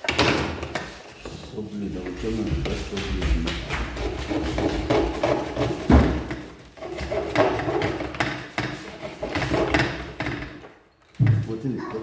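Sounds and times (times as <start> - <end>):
plastic conduit knocks and scrapes: 2.5 - 11.5.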